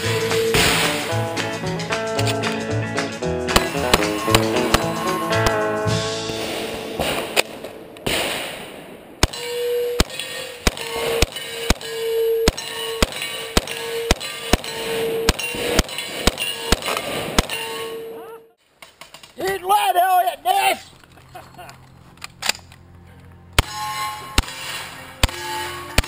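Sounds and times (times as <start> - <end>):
submachine gun shots: 6.3 - 17.8
ringing metallic clang: 9.2 - 18.2, 23.6 - 26.0.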